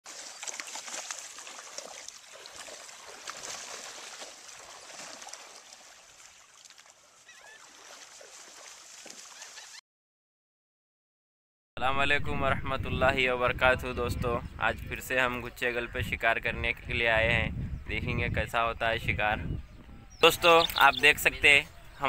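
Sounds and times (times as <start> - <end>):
water lapping against rocks: 0.0 - 9.6.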